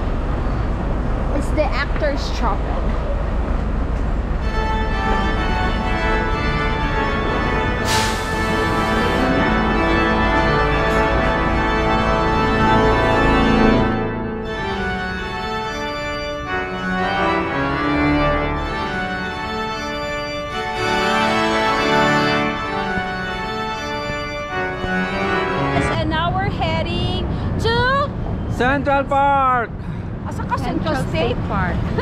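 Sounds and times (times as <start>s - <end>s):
organ chords: 4.4s - 26.4s.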